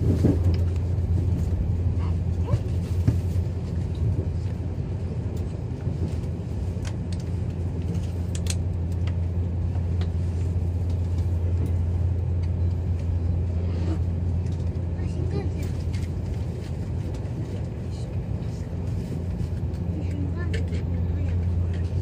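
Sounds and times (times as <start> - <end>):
train rumbling from inside: 0.0 - 22.0.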